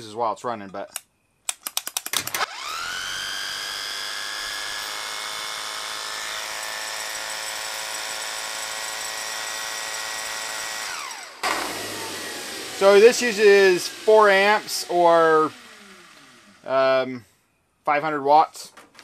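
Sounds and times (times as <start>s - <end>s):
rattle of clicks: 0.8s - 2.4s
hammer drill motor whining: 2.4s - 17.2s.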